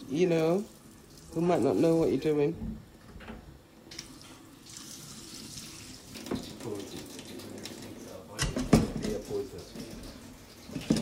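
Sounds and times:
water running: 0.0 - 11.0.

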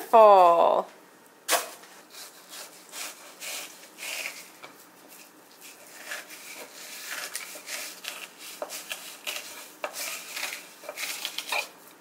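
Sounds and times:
knife rasping on cutting board: 2.1 - 4.5, 5.6 - 11.7.

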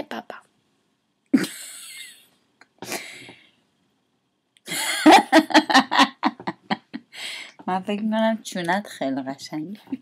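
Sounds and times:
woman laughing: 1.3 - 3.2, 4.7 - 7.2.

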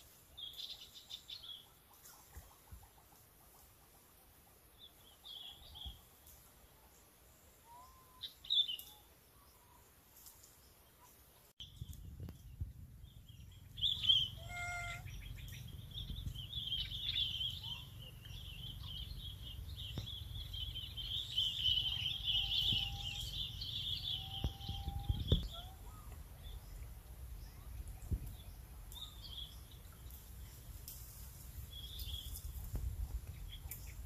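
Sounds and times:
small birds chirping: 7.6 - 34.0
low rumble: 11.6 - 28.7
short pitched call: 14.0 - 15.1.

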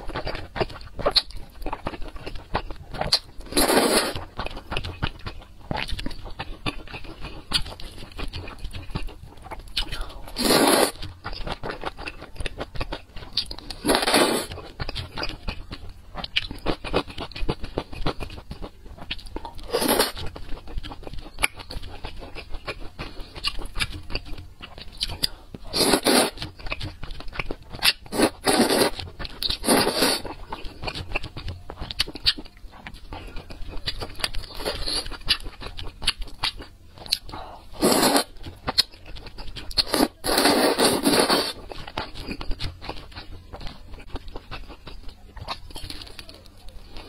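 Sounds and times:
wet chewing: 0.0 - 47.0
noodles slurped: 25.7 - 26.4, 37.8 - 38.3.

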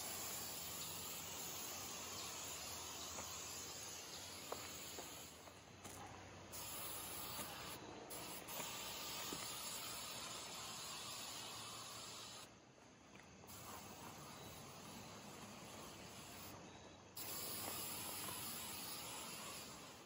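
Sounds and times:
aerosol spray hissing: 0.0 - 5.6, 6.5 - 12.5, 13.5 - 16.6, 17.2 - 20.0.

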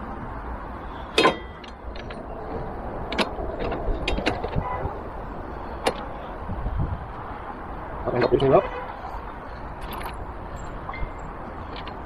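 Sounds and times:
metal luggage rack clicks and knocks: 1.1 - 2.2, 3.1 - 4.8.

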